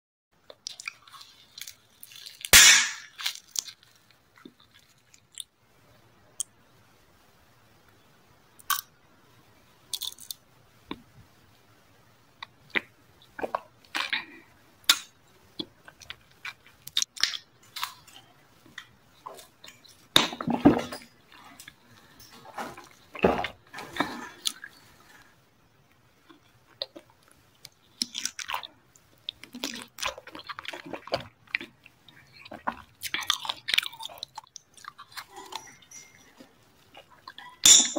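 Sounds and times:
person chewing food: 0:00.4 - 0:05.5, 0:12.4 - 0:20.5, 0:21.2 - 0:37.6
squishy crunchy mouth sounds: 0:26.3 - 0:35.7.

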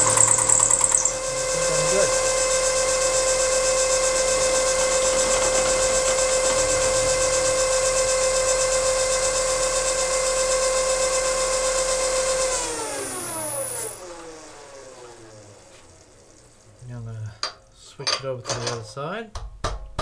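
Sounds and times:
end mill cutting hiss: 0:00.0 - 0:10.0
milling machine spindle whine: 0:00.0 - 0:16.8.

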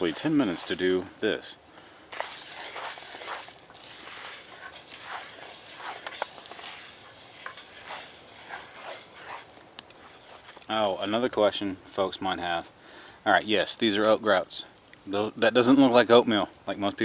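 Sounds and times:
grains scraping across a pan: 0:00.0 - 0:01.5, 0:02.1 - 0:12.8.

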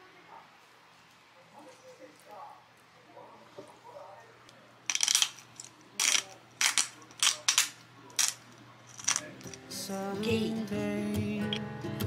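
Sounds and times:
pepper mill grinding: 0:04.9 - 0:09.8.

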